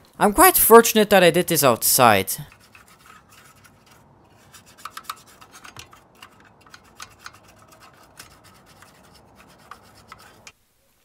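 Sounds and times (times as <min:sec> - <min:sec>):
toothbrush scrubbing plastic: 0:02.5 - 0:10.5.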